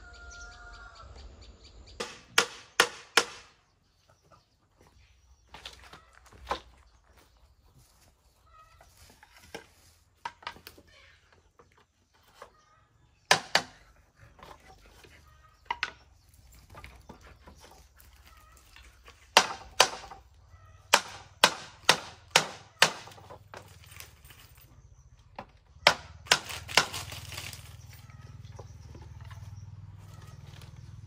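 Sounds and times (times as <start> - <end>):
hand tool striking wood: 2.0 - 3.6, 13.3 - 13.9, 19.1 - 20.2, 20.9 - 23.7, 25.4 - 27.6.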